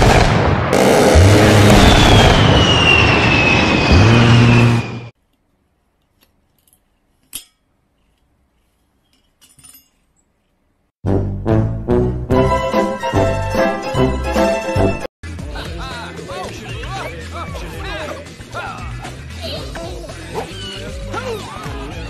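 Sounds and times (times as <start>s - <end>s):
jet noise with falling whine: 0.7s - 5.1s
comic theme music: 11.0s - 15.1s.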